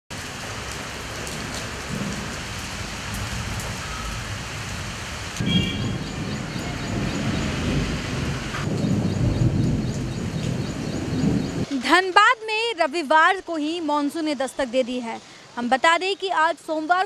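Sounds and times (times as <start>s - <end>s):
steady rain falling: 0.1s - 17.0s
low rolling thunder: 1.0s - 11.7s.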